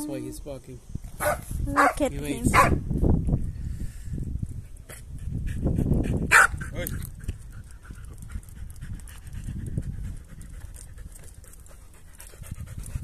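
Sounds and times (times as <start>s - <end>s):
dog panting: 4.9s - 13.0s.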